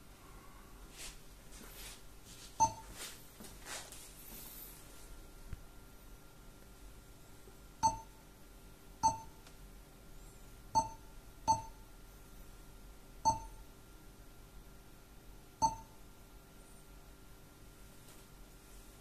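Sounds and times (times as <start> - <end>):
short touchscreen beeps: 2.6 - 2.8, 15.6 - 15.9.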